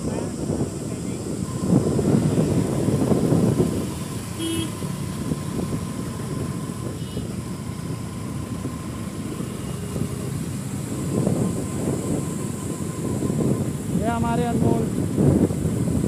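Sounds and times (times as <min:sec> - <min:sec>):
road and wind noise: 0:00.0 - 0:16.0
vehicle horn toot: 0:04.4 - 0:04.9, 0:07.0 - 0:07.3.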